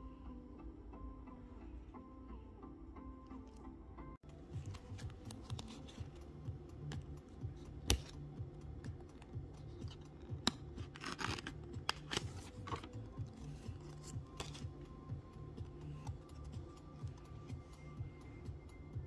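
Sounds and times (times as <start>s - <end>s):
plastic card sleeve rustling: 4.3s - 7.1s, 9.2s - 14.9s.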